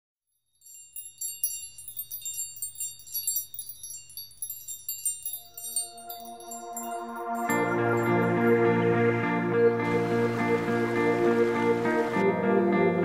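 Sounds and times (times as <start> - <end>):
tinkling chime sparkle: 0.3 - 8.9
soft sustained music notes: 5.8 - 13.0.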